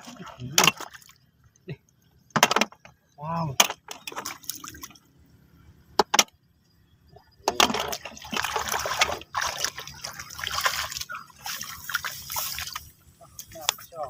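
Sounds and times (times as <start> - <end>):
hands splashing water: 7.6 - 12.9.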